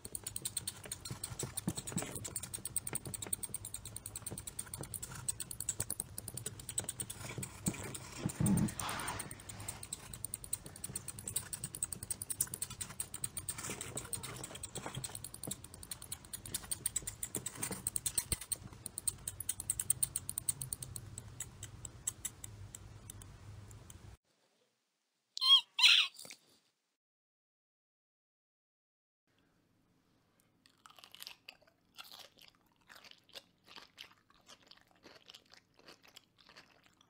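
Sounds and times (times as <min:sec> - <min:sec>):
mouse squeaks: 0:00.0 - 0:22.5, 0:25.4 - 0:26.2.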